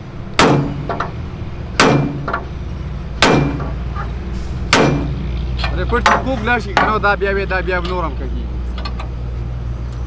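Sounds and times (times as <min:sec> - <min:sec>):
hammer striking metal rivet: 0:01.8 - 0:02.5, 0:03.2 - 0:03.8.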